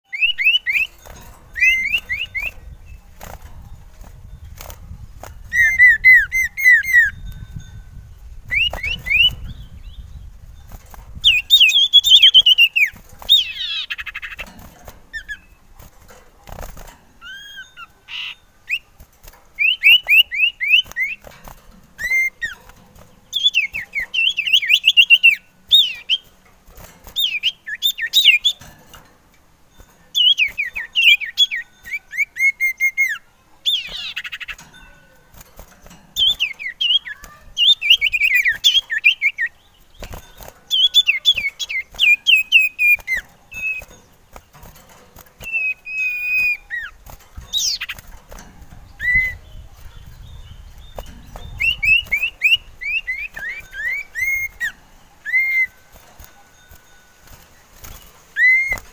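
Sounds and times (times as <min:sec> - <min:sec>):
bird chirping and whistling: 0:00.0 - 0:03.4, 0:05.4 - 0:07.4, 0:08.4 - 0:10.3, 0:11.2 - 0:14.5, 0:17.2 - 0:18.9, 0:19.6 - 0:21.3, 0:22.0 - 0:22.6, 0:23.3 - 0:26.3, 0:27.1 - 0:28.7, 0:30.1 - 0:34.6, 0:36.2 - 0:43.9, 0:45.4 - 0:48.1, 0:48.9 - 0:56.1, 0:56.7 - 0:58.9
bird harsh rattle: 0:10.5 - 0:58.9.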